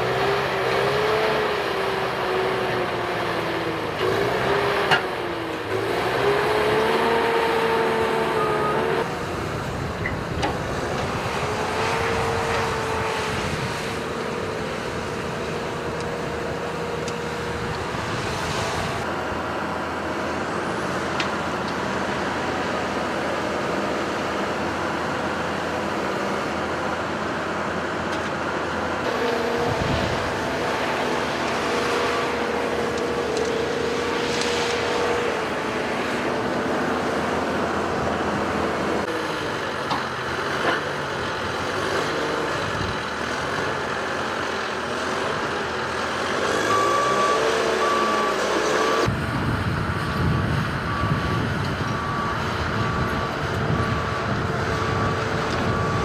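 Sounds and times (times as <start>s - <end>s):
excavator engine and hydraulics: 0.0s - 56.0s
hydraulic whine: 29.0s - 40.8s, 45.0s - 56.0s.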